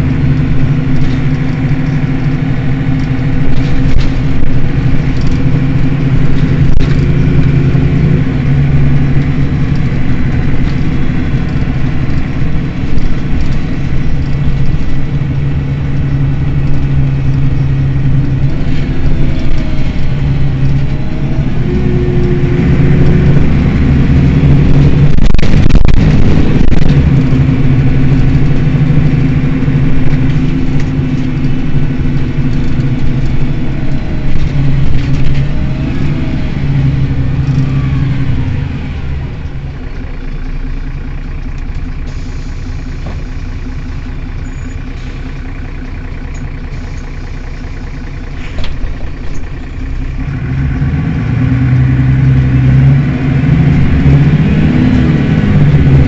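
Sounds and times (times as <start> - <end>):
bus diesel engine humming: 0.0 - 56.0
loud rush of noise: 2.4 - 39.6.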